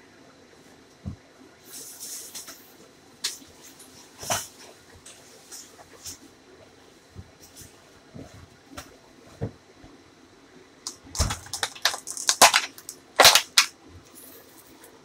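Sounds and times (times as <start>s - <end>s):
plastic bag crinkling: 10.9s - 14.8s.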